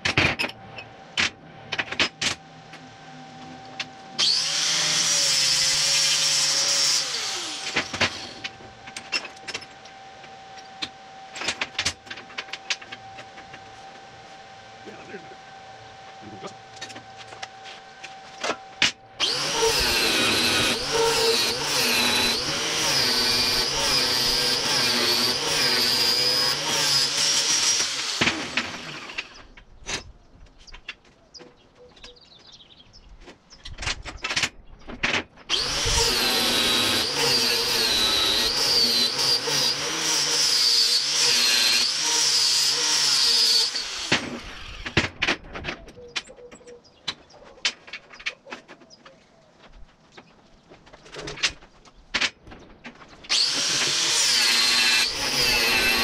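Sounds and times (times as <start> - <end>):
power tool motor whining: 1.6 - 29.6, 35.5 - 45.2, 53.3 - 56.0.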